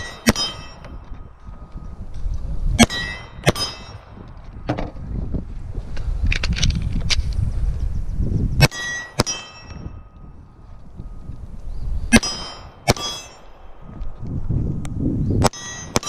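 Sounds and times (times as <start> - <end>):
bullets clanging on steel plates: 0.0 - 1.0, 2.8 - 4.0, 8.6 - 10.2, 12.2 - 13.6.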